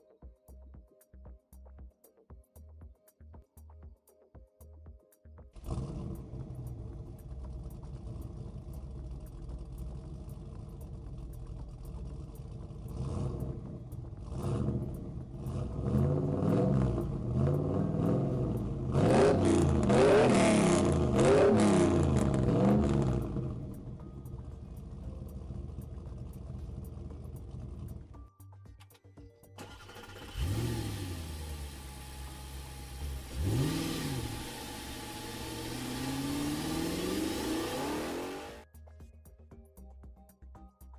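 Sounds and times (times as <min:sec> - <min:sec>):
vehicle engine revving: 0:05.6 - 0:28.1, 0:29.6 - 0:38.6.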